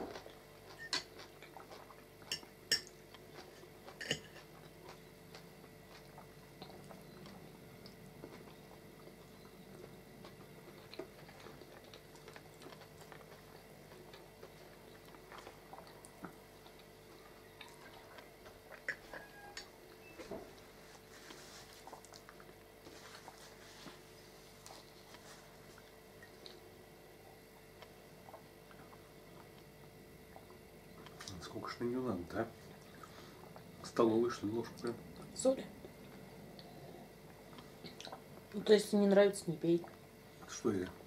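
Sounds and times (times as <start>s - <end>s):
faint room hum: 0.0s - 41.0s
cutlery clinking on plates: 4.0s - 4.5s.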